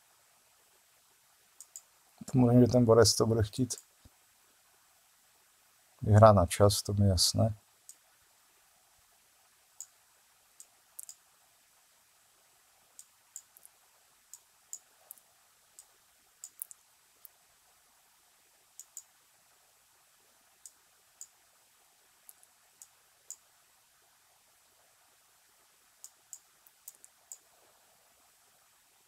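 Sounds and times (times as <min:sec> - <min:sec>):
computer mouse clicking: 0:01.6 - 0:01.9, 0:10.6 - 0:11.2, 0:13.0 - 0:15.2, 0:15.8 - 0:17.4, 0:18.8 - 0:19.1, 0:20.6 - 0:21.4, 0:22.3 - 0:23.4, 0:26.0 - 0:27.5.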